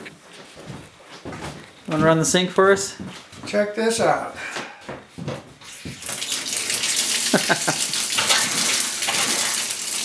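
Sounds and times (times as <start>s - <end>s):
faucet water into metal sink: 6.0s - 10.0s.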